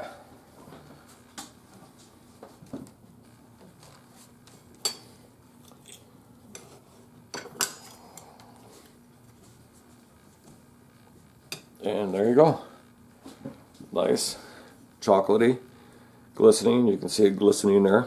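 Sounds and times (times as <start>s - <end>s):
kitchenware clinking and scraping: 4.8s - 8.2s.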